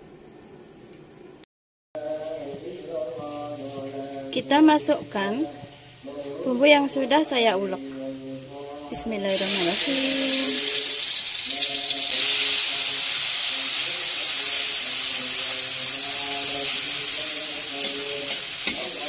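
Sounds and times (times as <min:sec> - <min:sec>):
paste sizzling in hot oil: 0:08.5 - 0:19.0
metal spatula stirring in wok: 0:16.8 - 0:19.0.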